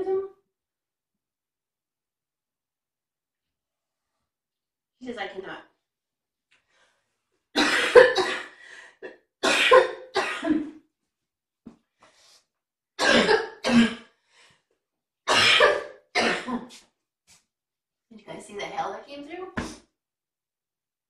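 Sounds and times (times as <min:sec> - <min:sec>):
person coughing: 0:07.6 - 0:10.7, 0:13.0 - 0:14.1, 0:15.3 - 0:16.7.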